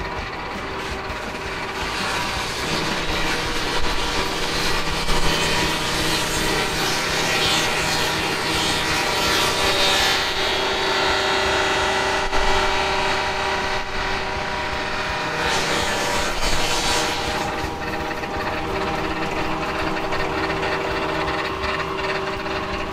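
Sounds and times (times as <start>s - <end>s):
saw motor and blade whine: 0.0s - 22.9s
saw cutting wood hiss: 14.7s - 21.4s.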